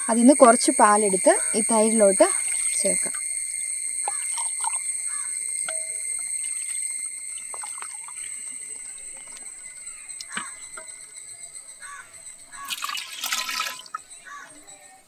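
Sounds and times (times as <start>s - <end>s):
high-pitched whine: 0.0s - 15.0s
liquid pouring and dribbling: 4.0s - 5.0s, 5.6s - 9.6s, 12.6s - 14.1s.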